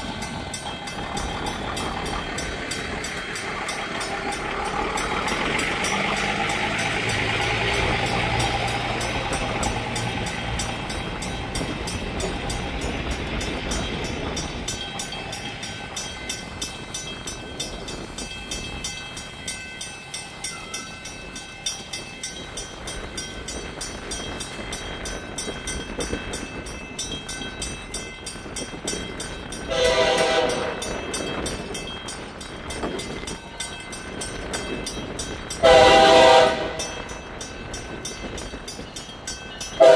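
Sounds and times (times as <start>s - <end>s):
train rumble and hum: 0.0s - 39.9s
train horn blast: 29.7s - 30.9s, 35.6s - 37.0s.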